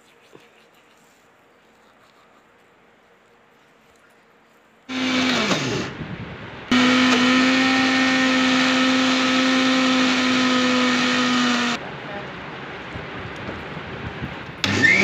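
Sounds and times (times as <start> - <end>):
mixer grinder motor running: 4.9 - 6.0, 6.7 - 11.8, 14.6 - 15.0.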